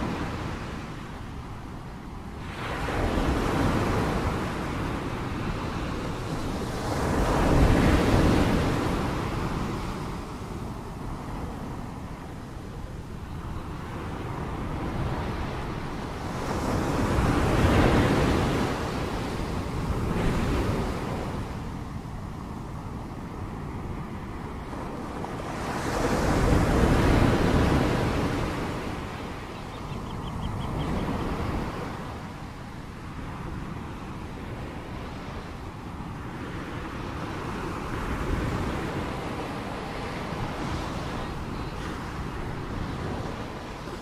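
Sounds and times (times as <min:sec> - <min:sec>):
ocean waves breaking: 0:14.0 - 0:44.0.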